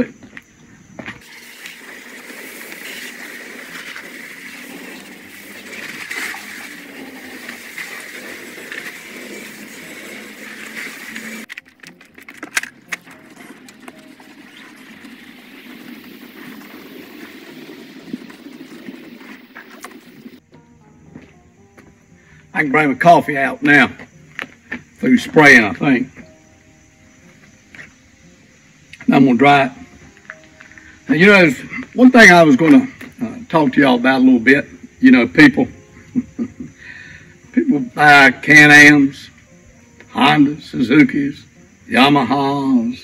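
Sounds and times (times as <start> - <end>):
garden hose spraying water: 1.2 - 12.0, 12.8 - 20.4.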